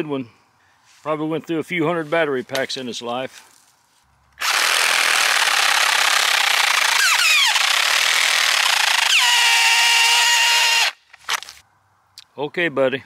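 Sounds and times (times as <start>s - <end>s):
reciprocating saw cutting log: 4.4s - 11.6s.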